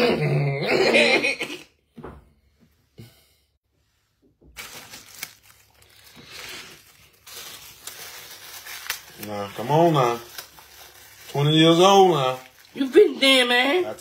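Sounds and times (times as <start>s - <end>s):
plastic wrapper rustling: 4.4s - 14.0s
man talking: 9.2s - 10.3s, 11.3s - 12.5s.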